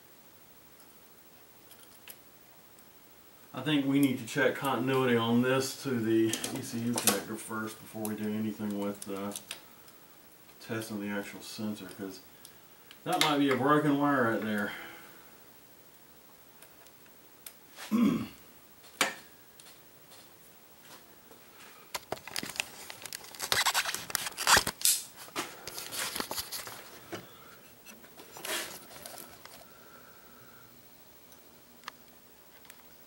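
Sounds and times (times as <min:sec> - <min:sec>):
hands handling wiring and plastic: 0:21.9 - 0:29.7.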